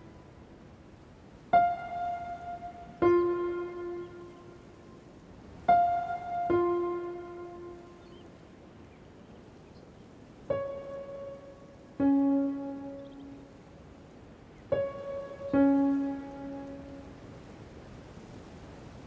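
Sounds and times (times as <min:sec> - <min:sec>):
piano notes: 0:00.0 - 0:00.4, 0:01.5 - 0:04.9, 0:05.6 - 0:08.3, 0:10.5 - 0:13.7, 0:14.6 - 0:17.4.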